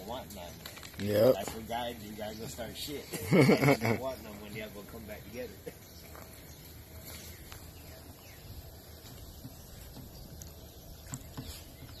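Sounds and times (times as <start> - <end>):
puppies scuffling on a board: 7.0 - 12.0.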